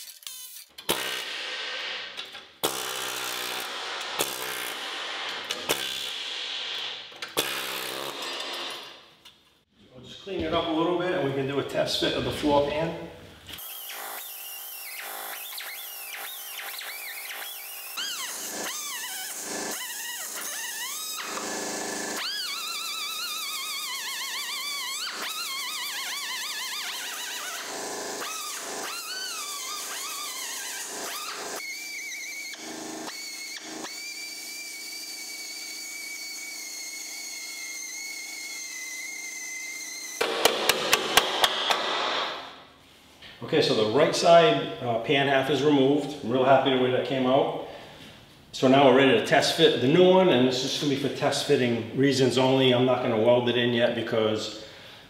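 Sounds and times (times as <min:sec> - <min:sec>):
cut-off tool cutting sheet steel: 0:00.0 - 0:09.0, 0:13.6 - 0:42.6.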